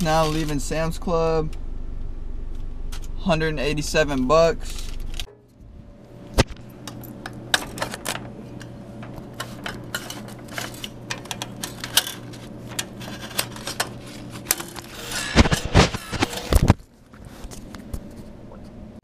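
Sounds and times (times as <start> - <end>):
steady low hum: 0.0 - 19.0
clicks and knocks: 5.2 - 5.7
paper rustling: 9.3 - 18.3.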